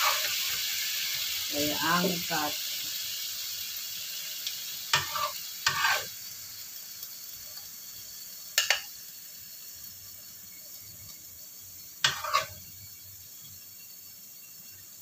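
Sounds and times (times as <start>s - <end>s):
spatula scraping and knocking wok: 0.0s - 2.3s, 4.9s - 6.2s, 8.5s - 9.0s, 11.8s - 13.0s
chicken feet sizzling in a wok: 0.0s - 15.0s.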